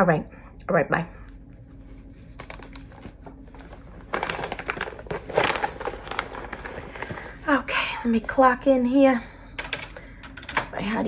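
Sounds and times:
computer keyboard typing: 9.6 - 10.7.

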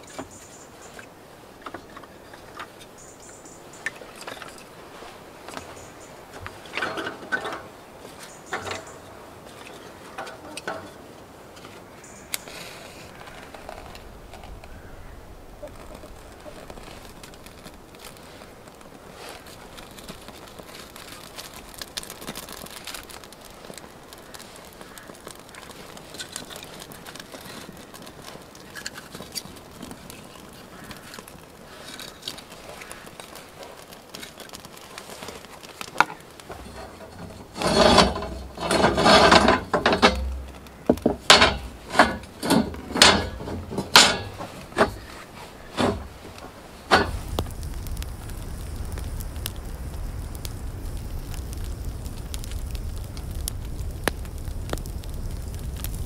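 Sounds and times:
kindling fire crackling: 0.0 - 56.0
wood fire burning rush: 0.0 - 56.0
metal clanks: 8.5 - 9.0, 36.5 - 45.1
grill grates scraping on concrete: 36.5 - 47.2.

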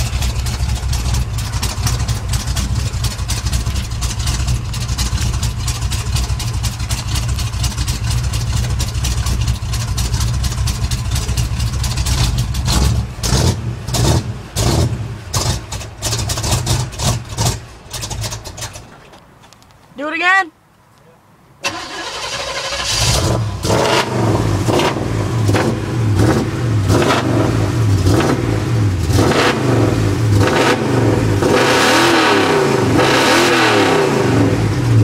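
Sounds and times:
truck engine running loud: 0.0 - 18.4.

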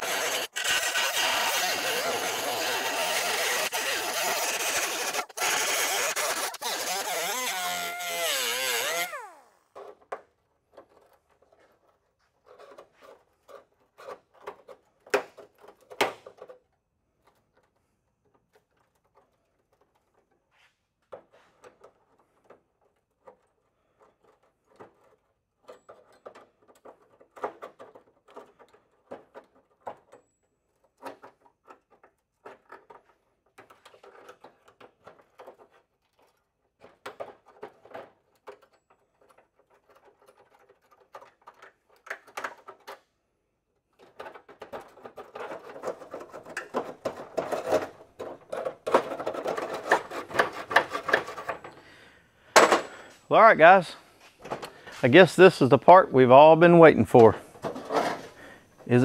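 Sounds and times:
sheet metal scraping and rubbing: 0.0 - 9.4, 44.8 - 51.8, 57.5 - 58.7.

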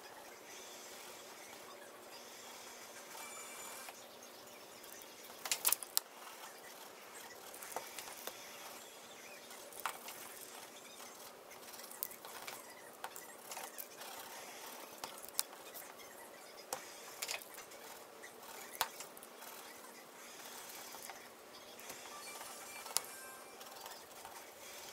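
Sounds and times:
pen drawing clicks and scratches: 9.8 - 16.1.

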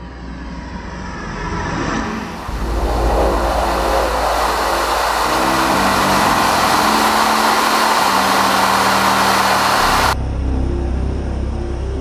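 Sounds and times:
low drone: 0.0 - 11.9
aircraft engine roar: 0.8 - 10.2
rushing airflow: 1.8 - 10.2.

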